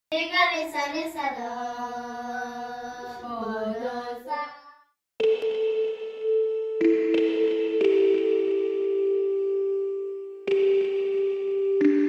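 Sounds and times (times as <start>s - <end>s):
music with held tone: 5.2s - 12.0s.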